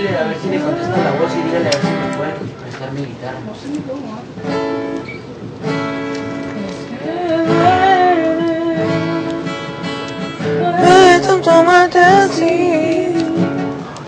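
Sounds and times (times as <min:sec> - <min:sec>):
acoustic guitar chords: 0:00.0 - 0:02.7, 0:04.3 - 0:14.0
person singing a ballad: 0:06.5 - 0:13.9.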